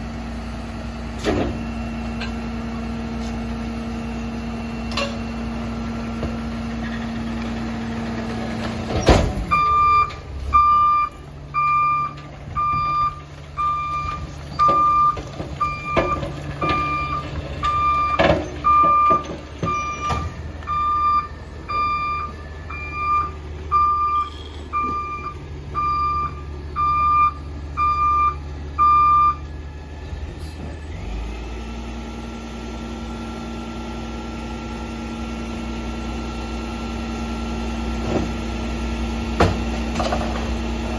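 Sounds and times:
diesel engine running: 0.0s - 40.9s
reversing alarm beeping: 3.8s - 6.2s, 9.5s - 29.5s.

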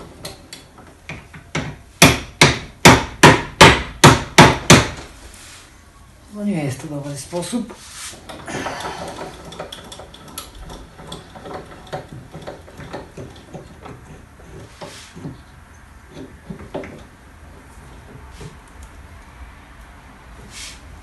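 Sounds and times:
metal scraping rasp: 7.9s - 18.6s.

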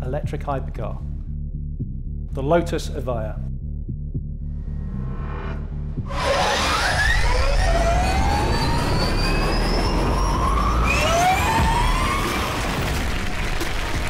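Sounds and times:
electric car whine accelerating: 6.1s - 13.9s.

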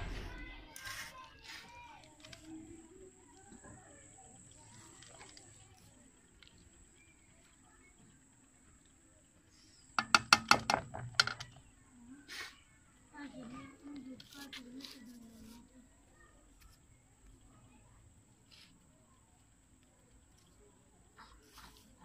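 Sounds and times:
wooden spatula rapping metal pot: 10.0s - 11.4s.

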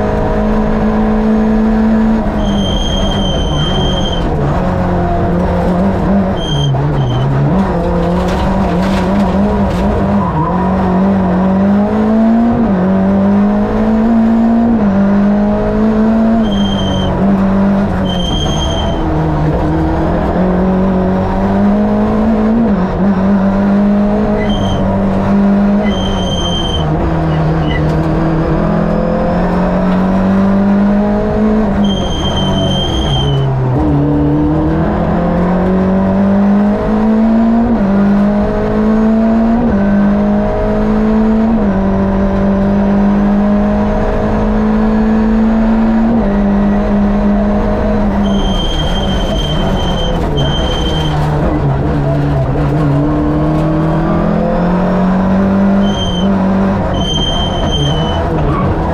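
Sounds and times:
rally car engine revving: 0.0s - 58.9s
tyre squeals: 2.3s - 4.4s, 6.1s - 7.5s, 16.3s - 17.2s, 18.0s - 19.2s, 24.3s - 25.1s, 25.7s - 28.0s, 31.8s - 33.6s, 48.1s - 51.5s, 55.6s - 58.9s.

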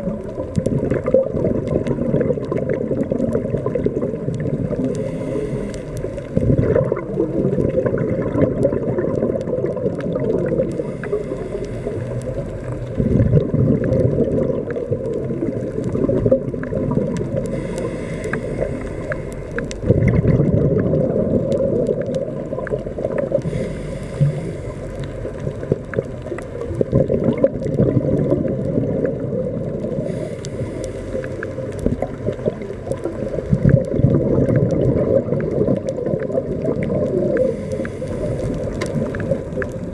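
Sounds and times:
exhaled bubbles gurgling: 0.0s - 39.9s
underwater rumble: 0.0s - 39.9s
regulator inhale hiss: 4.6s - 6.7s, 10.5s - 12.9s, 17.3s - 19.9s, 22.6s - 25.7s, 29.8s - 32.0s, 37.2s - 39.9s.

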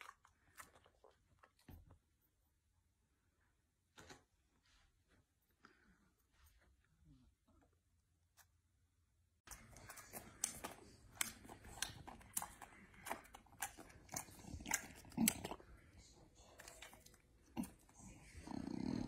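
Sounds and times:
dog chewing and smacking lips: 0.0s - 2.2s, 9.5s - 18.6s.

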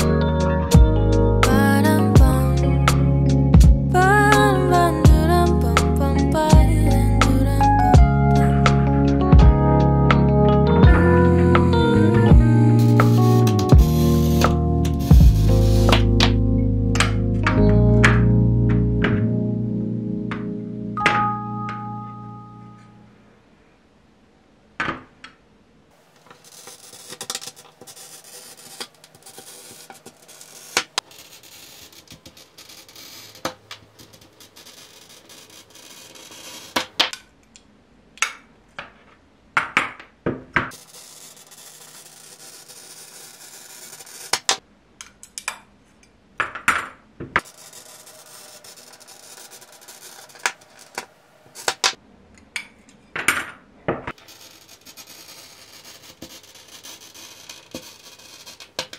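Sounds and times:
glass and tool scraping: 12.7s - 16.4s, 26.2s - 37.0s, 47.4s - 51.8s, 54.1s - 58.9s.

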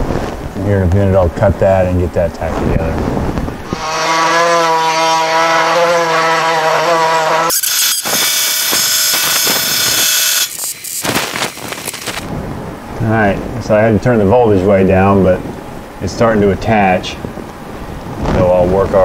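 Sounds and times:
welder arc buzzing: 3.6s - 12.3s
welder crackling hiss: 7.5s - 12.3s.

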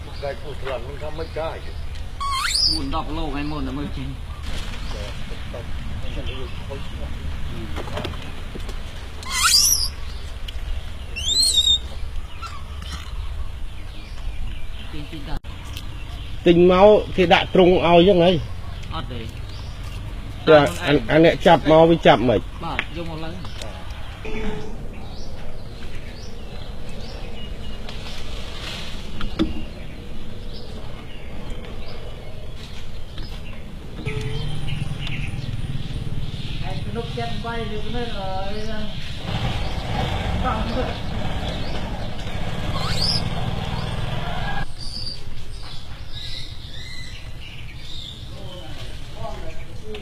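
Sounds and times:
small birds chirping: 0.0s - 50.0s
upward sliding whistle calls: 2.2s - 2.9s, 9.2s - 10.0s, 11.2s - 11.9s, 42.7s - 43.3s.

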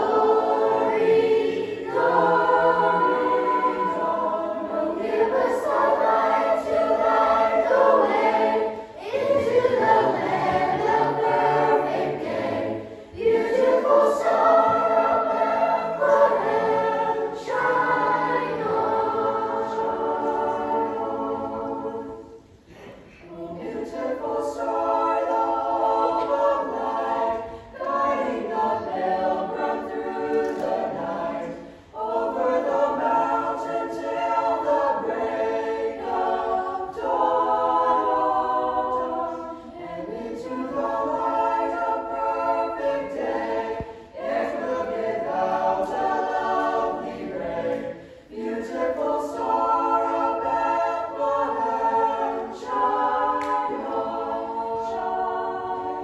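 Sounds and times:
choir singing a cappella: 0.0s - 56.0s.

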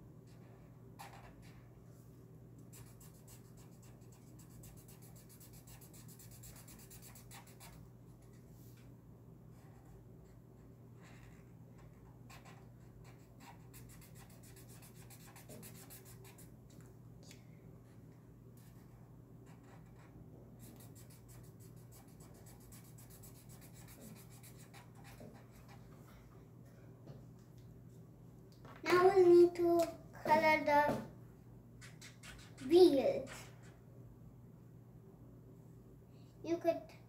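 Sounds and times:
faint steady hum: 0.0s - 37.0s
marker scratching on paper: 0.3s - 1.6s, 2.7s - 8.4s, 9.5s - 10.4s, 11.0s - 16.5s, 18.6s - 25.9s, 31.8s - 33.8s.

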